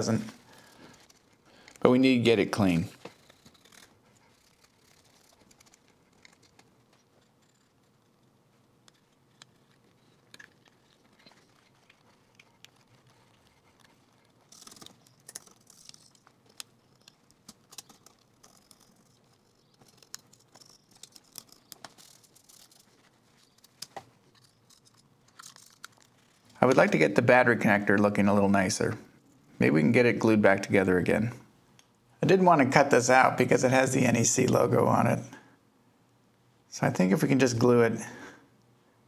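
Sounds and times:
pick scratching plastic: 0.3 - 27.1.

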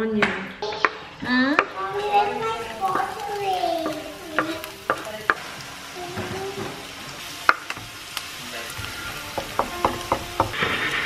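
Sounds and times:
onion sizzling in hot oil: 0.6 - 11.0
wooden spatula knocking on board: 9.3 - 10.8.

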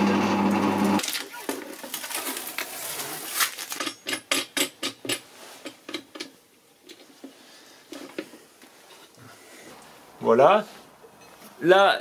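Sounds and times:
plastic sheet brushing: 1.0 - 3.8.

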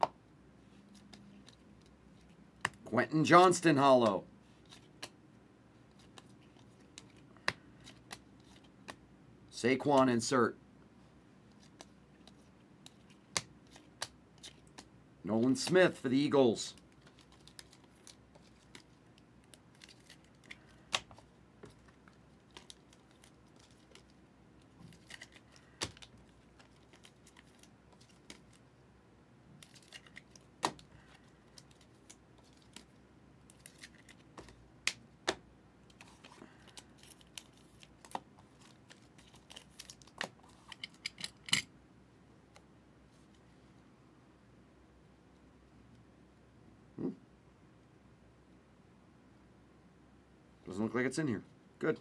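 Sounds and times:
trading cards sliding and rustling: 4.4 - 5.2, 5.9 - 9.0, 35.9 - 41.1
cards clicking and snapping: 11.6 - 14.9, 16.8 - 24.2, 24.8 - 28.6, 29.6 - 41.2.

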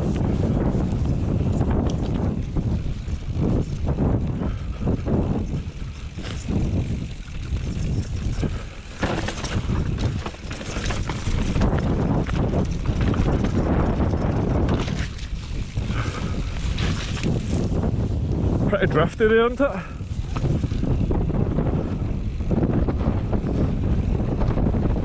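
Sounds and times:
bike knocks and rattles: 0.0 - 18.0, 20.0 - 25.0
wind buffeting microphone: 0.0 - 25.0
tyre rumble on dirt: 6.2 - 18.0.

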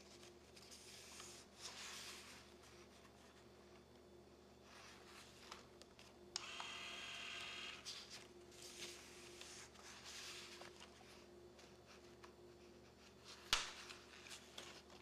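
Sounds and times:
paper rustling: 0.0 - 3.9, 7.8 - 15.0
small motor whirring: 6.4 - 7.9.

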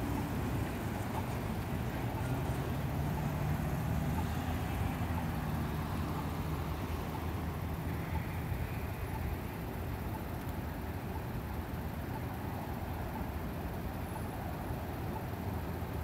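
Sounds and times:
cars idling: 0.0 - 16.0
road traffic noise: 0.0 - 16.0.

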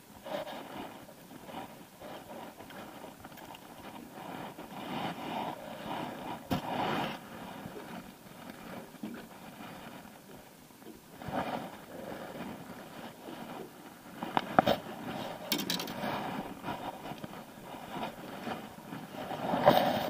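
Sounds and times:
scrapes: 3.9 - 8.9, 11.2 - 20.0
clothing rustling: 11.1 - 20.0.

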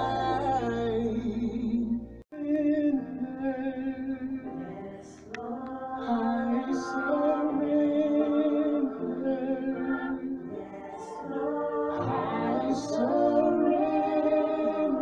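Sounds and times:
choir singing in harmony: 0.0 - 2.0, 2.6 - 15.0.

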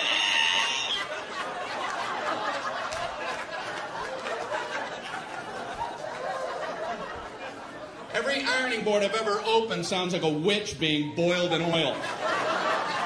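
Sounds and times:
audience laughing: 0.0 - 8.2, 11.8 - 13.0.

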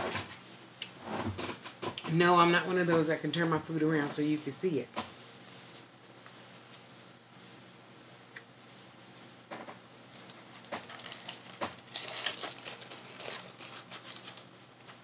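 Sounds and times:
paper wrapper crinkling: 10.1 - 15.0.

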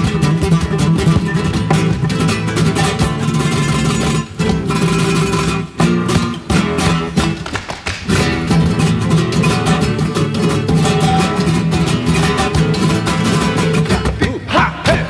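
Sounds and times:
acoustic guitars playing flamenco: 0.0 - 15.0.

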